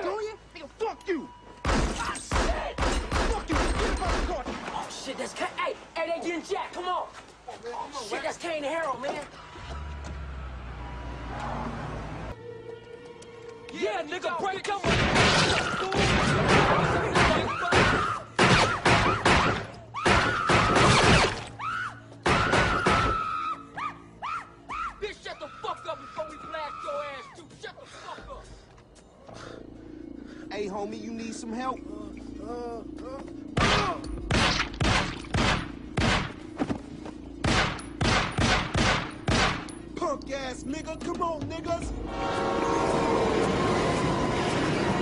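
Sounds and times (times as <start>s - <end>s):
loud gunshots: 1.6s - 4.4s, 14.8s - 21.4s, 33.6s - 36.4s, 37.4s - 39.7s
woman screaming: 22.8s - 27.4s.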